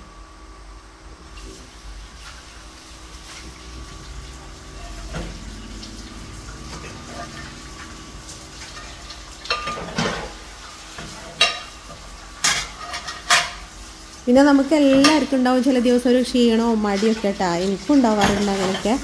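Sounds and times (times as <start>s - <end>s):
tap water running: 1.1s - 19.0s
dishes being scrubbed: 4.8s - 13.7s, 16.8s - 19.0s
pans and plates clattering: 8.6s - 10.4s, 11.0s - 11.8s, 12.4s - 13.7s, 18.1s - 19.0s.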